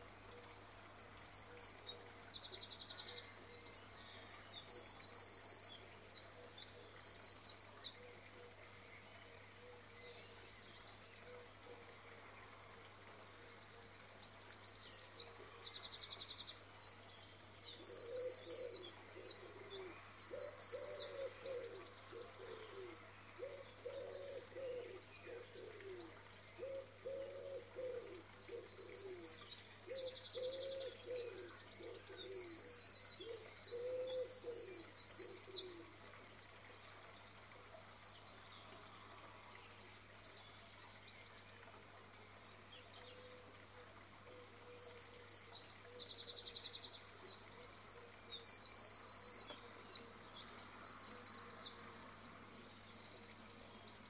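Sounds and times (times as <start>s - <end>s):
birds chirping: 0.0s - 54.0s
low cooing call: 17.7s - 36.3s.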